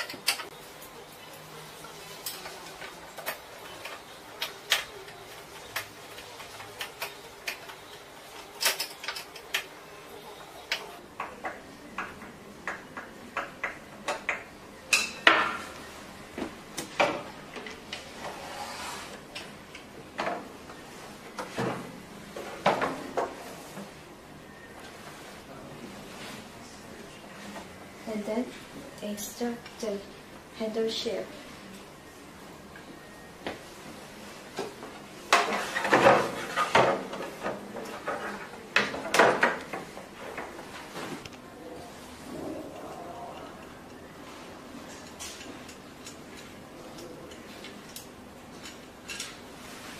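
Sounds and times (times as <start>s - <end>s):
rubbing scrape: 18.3s - 19.1s.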